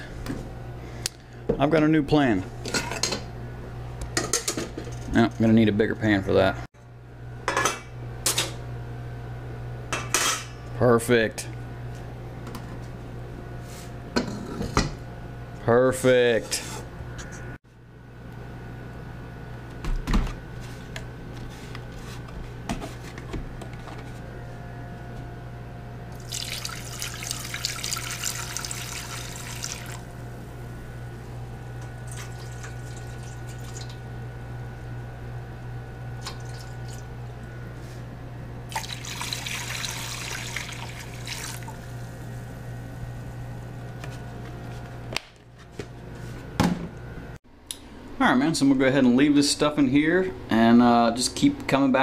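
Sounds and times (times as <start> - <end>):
steady low hum: 0.0 - 52.0
liquid pouring from a jug: 26.2 - 30.1, 32.0 - 34.0, 36.2 - 37.1, 38.7 - 41.9.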